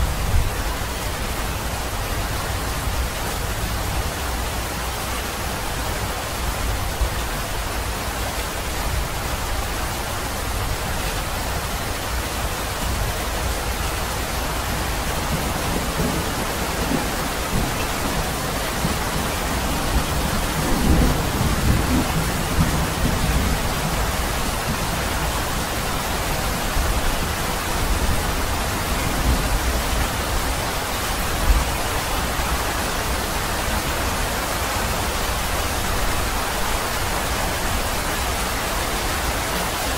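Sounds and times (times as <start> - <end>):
rainfall hissing: 0.0 - 39.9
low rumble of thunder: 15.0 - 25.6.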